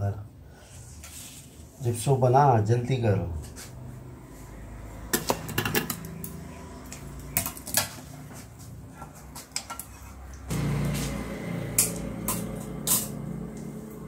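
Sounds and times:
low hum: 0:10.5 - 0:14.0.

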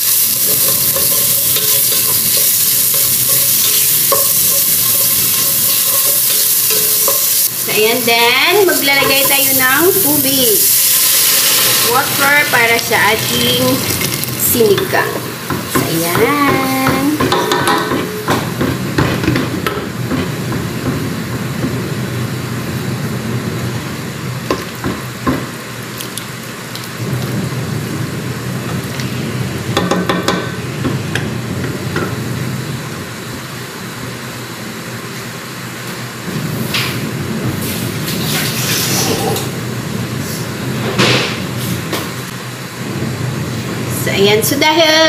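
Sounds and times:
steady hiss: 0:00.0 - 0:17.0
spoon knocking against pot: 0:08.9 - 0:09.4, 0:15.5 - 0:20.3.

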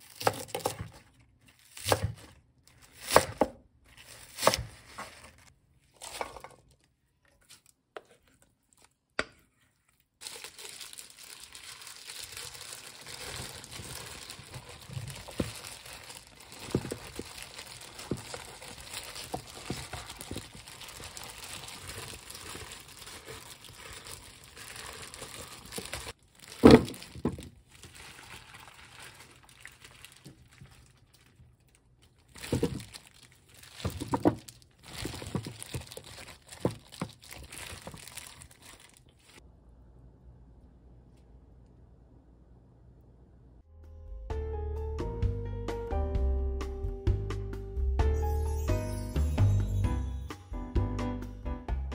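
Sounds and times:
wet mixing sound: 0:03.9 - 0:39.4.

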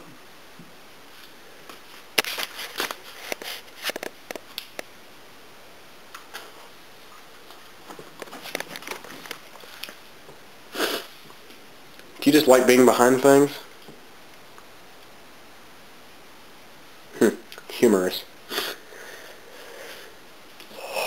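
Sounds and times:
short breathy puff: 0:10.7 - 0:11.2.

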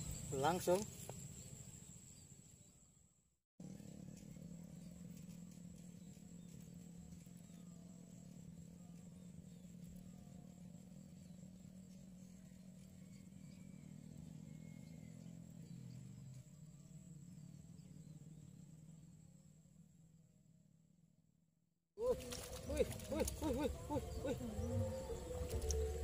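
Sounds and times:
faint bird chirps: 0:03.6 - 0:19.5
faint low hum: 0:03.6 - 0:20.8, 0:22.0 - 0:26.0.

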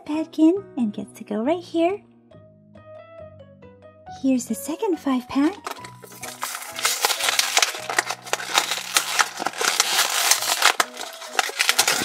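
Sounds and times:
plastic crinkling: 0:05.4 - 0:12.0
card backing ripping: 0:05.5 - 0:12.0.

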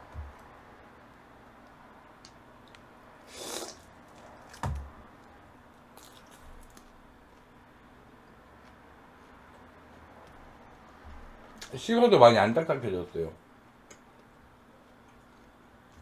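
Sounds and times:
slurping: 0:03.2 - 0:03.9
soft chewing: 0:05.2 - 0:11.8, 0:14.0 - 0:16.0.

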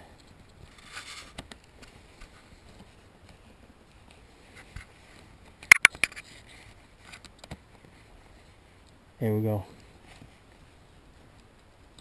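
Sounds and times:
sharp clip clicks: 0:05.7 - 0:06.1.

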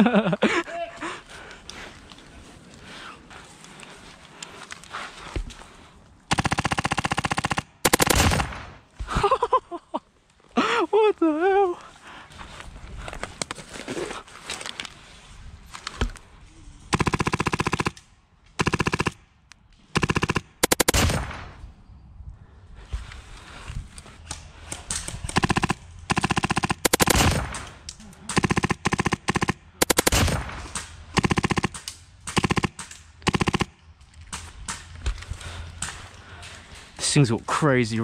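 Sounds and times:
airsoft rifle full-auto bursts: 0:06.3 - 0:08.8, 0:16.9 - 0:18.0, 0:18.6 - 0:19.2, 0:19.9 - 0:21.5, 0:25.3 - 0:27.7, 0:28.3 - 0:33.8.

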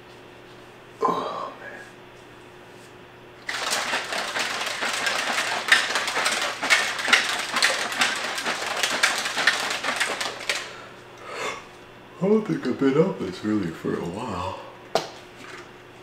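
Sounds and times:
shaker bottle sloshing and rattling: 0:03.4 - 0:10.8.

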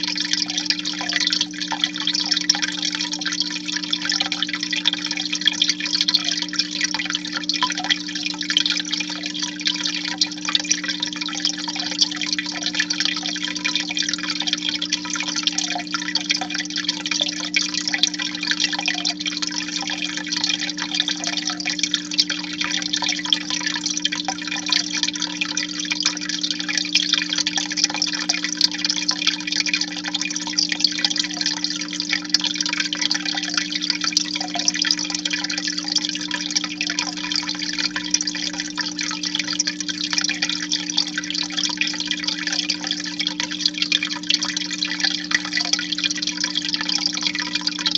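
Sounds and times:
water splashing and trickling: 0:00.0 - 0:47.9.

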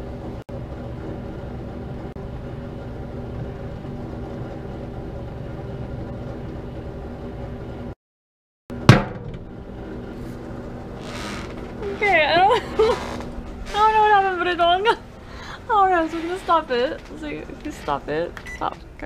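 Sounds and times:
microwave oven humming: 0:00.0 - 0:08.0, 0:08.7 - 0:19.0
sharp bang: 0:08.8 - 0:09.5.

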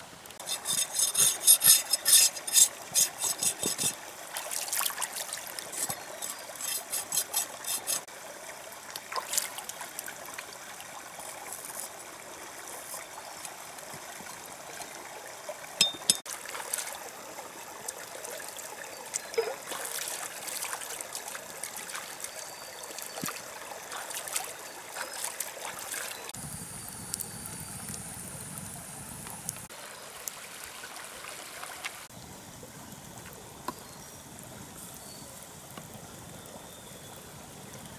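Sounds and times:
stream trickling and splashing: 0:00.0 - 0:37.9
knife scraping hide: 0:00.4 - 0:04.0, 0:05.6 - 0:08.1.

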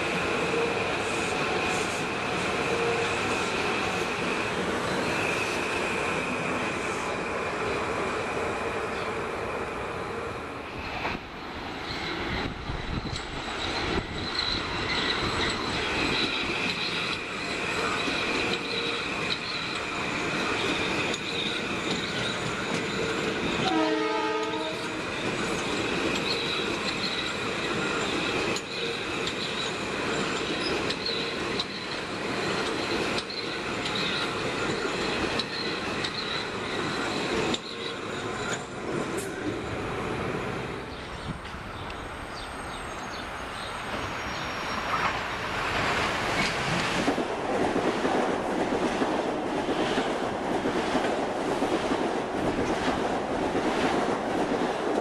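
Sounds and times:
train wheels rumbling on rail: 0:00.0 - 0:55.0
train horn blast: 0:23.6 - 0:25.0.

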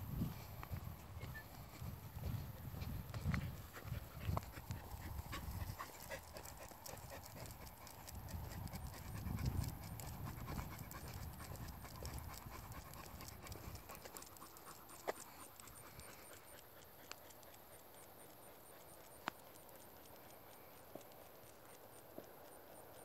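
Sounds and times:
footsteps on pavement: 0:00.1 - 0:04.6
dog panting: 0:00.1 - 0:23.0.

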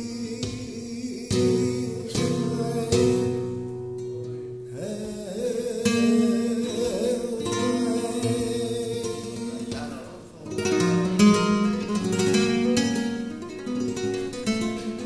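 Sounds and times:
man singing long notes: 0:00.0 - 0:03.8, 0:04.6 - 0:11.7
flamenco guitar: 0:00.0 - 0:15.0.

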